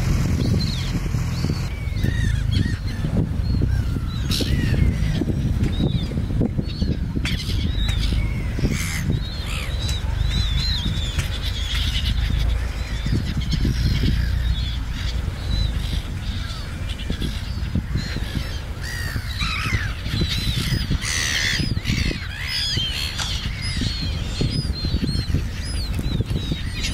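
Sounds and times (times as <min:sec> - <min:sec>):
gulls calling harshly: 0:00.0 - 0:26.9
steady low rumble: 0:00.0 - 0:26.9.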